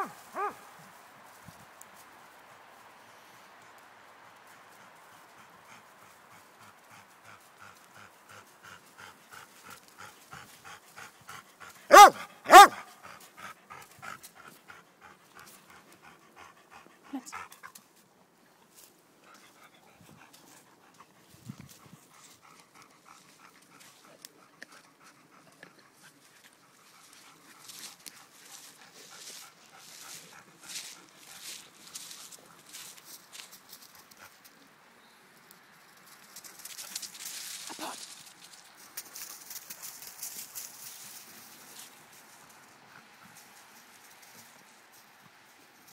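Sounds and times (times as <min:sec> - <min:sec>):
dog barking: 0:00.0 - 0:00.6, 0:11.9 - 0:12.9
dog panting: 0:04.7 - 0:17.8, 0:19.2 - 0:34.5.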